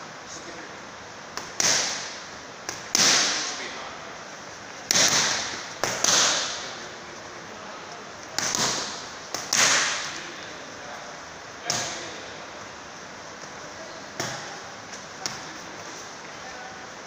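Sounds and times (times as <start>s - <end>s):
boxing gloves smacking mitts: 1.3s - 3.5s, 4.9s - 6.6s, 8.3s - 10.2s.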